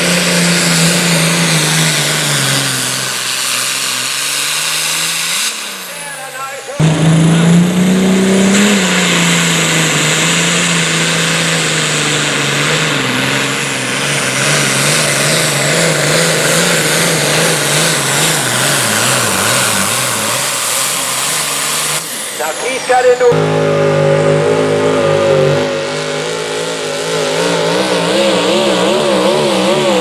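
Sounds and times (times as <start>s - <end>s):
tractor diesel engine at full throttle: 0.0s - 30.0s.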